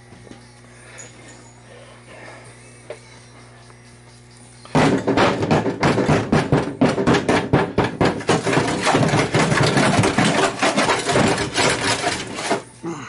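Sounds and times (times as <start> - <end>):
nozzle scraping metal floor: 8.2 - 12.6
rattling clatter: 8.2 - 12.6.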